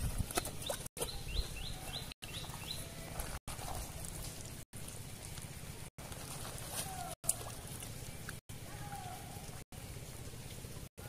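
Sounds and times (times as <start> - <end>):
bird chirping: 0.3 - 3.0
low outdoor rumble: 1.4 - 11.0.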